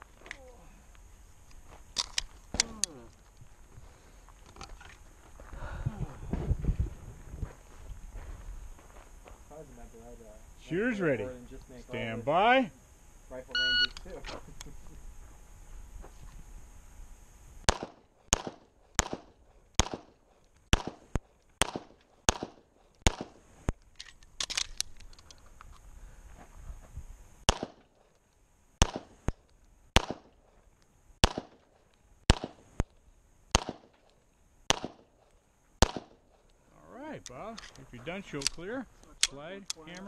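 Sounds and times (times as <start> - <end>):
pistol shots: 17.7 - 23.4, 27.5 - 27.9, 28.8 - 29.2, 30.0 - 30.3, 31.2 - 31.6, 32.3 - 32.6, 33.5 - 33.9, 34.7 - 35.1, 35.8 - 36.2.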